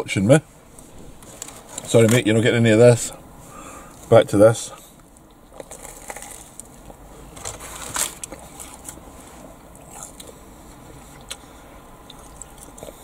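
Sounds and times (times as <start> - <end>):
chewing with small crunches: 4.8 - 13.0
crunching bites into fried food: 5.3 - 6.8.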